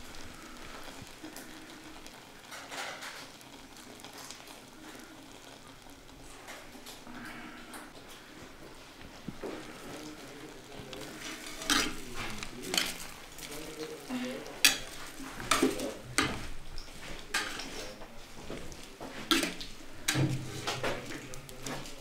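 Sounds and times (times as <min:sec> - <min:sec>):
metal spoon scraping a pot: 0:11.0 - 0:13.8, 0:14.5 - 0:21.9.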